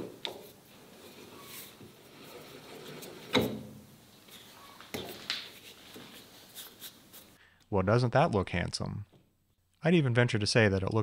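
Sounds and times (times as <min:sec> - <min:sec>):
light metal scraping: 0:00.7 - 0:03.5.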